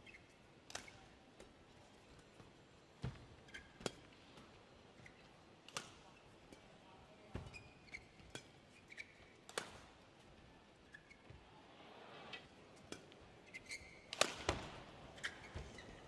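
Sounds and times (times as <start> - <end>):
shoe squeaks on court floor: 7.4 - 9.4, 10.9 - 11.5, 13.5 - 14.3, 15.2 - 16.0
racket striking shuttlecock: 9.5 - 9.8, 14.1 - 14.8.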